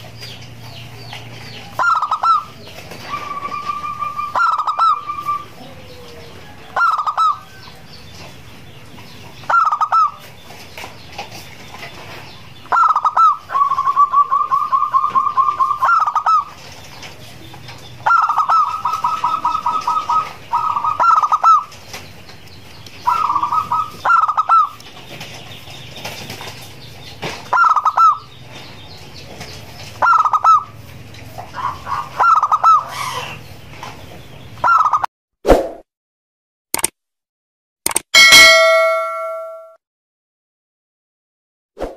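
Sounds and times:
dove cooing: 1.7s - 7.6s, 12.7s - 16.6s, 18.0s - 21.7s, 23.1s - 24.7s.

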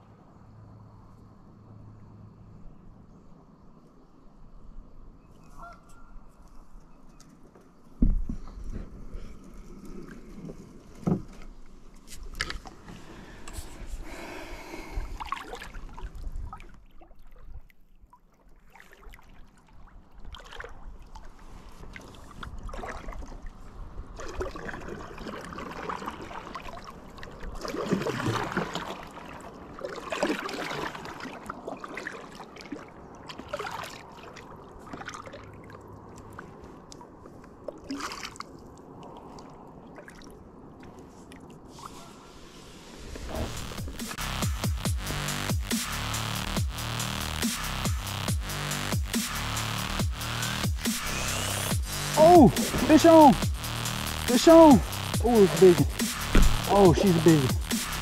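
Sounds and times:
water splashing around a kayak: 7.9s - 44.1s, 52.2s - 53.5s
knocks: 56.3s - 56.7s.

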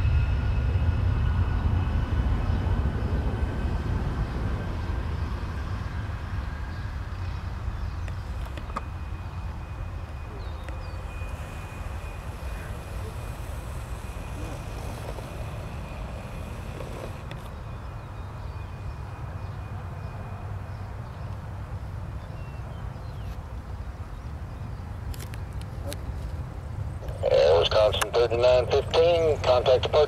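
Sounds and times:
jet engines rumbling: 0.0s - 30.0s
faint hiss: 10.7s - 17.5s.

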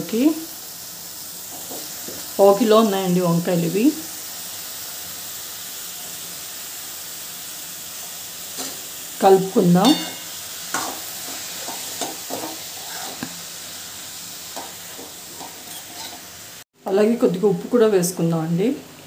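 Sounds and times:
vegetables sizzling in oil: 0.0s - 19.0s
metal spatula scraping pan: 9.8s - 13.3s, 14.6s - 16.3s.

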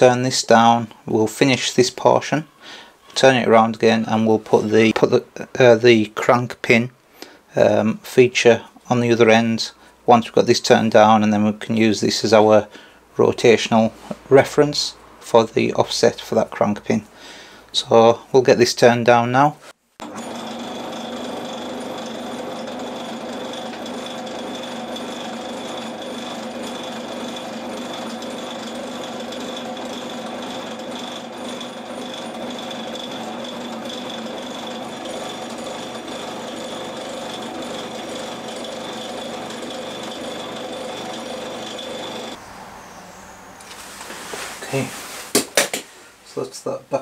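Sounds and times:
lathe motor hum: 20.0s - 42.8s
metal lathe high whine: 20.0s - 43.3s.

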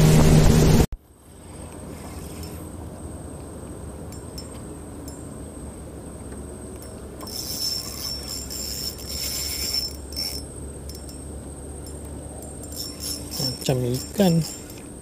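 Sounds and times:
small bell jingling: 7.3s - 14.8s.

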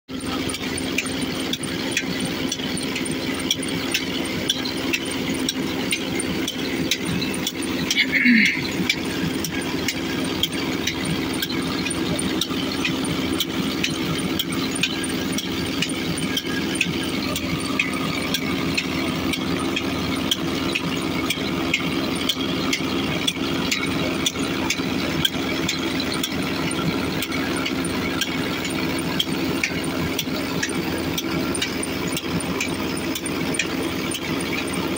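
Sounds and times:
tractor diesel engine running: 0.0s - 34.9s
light regular ticks: 0.5s - 8.0s.

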